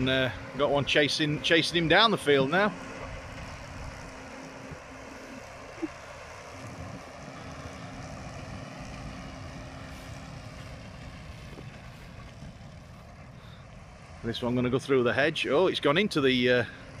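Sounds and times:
distant tractor engine drone: 0.0s - 17.0s.

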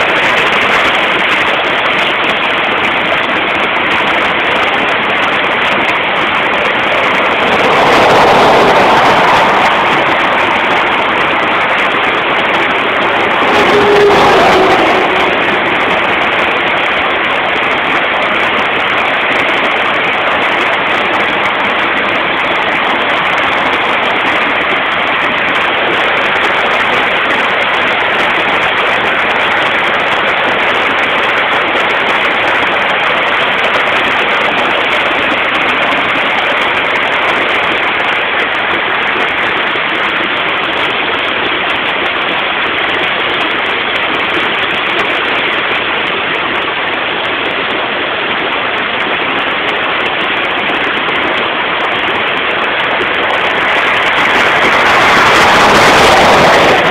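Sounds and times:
floodwater rushing: 0.0s - 56.9s.

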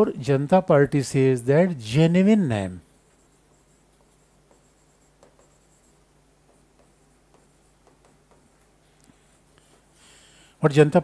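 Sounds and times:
low electrical hum: 0.0s - 11.0s
chalk scratching on blackboard: 2.9s - 9.6s.

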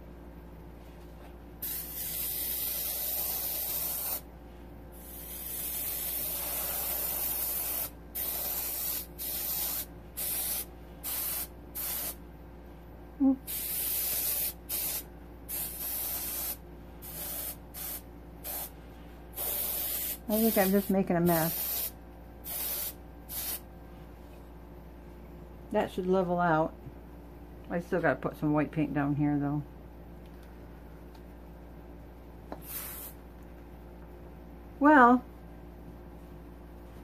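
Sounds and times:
airbrush hissing blasts: 1.6s - 4.3s, 4.9s - 12.2s, 13.5s - 23.6s, 32.5s - 33.2s.

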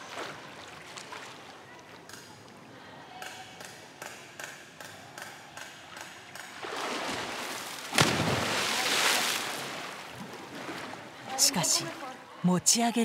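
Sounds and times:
pool water splashing: 0.0s - 3.2s, 5.7s - 12.5s.

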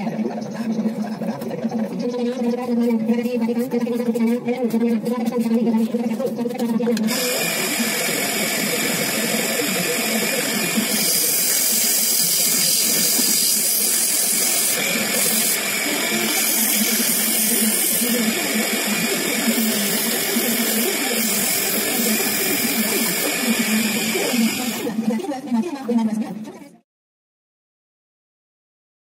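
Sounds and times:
electric pump motor running: 6.9s - 25.2s.

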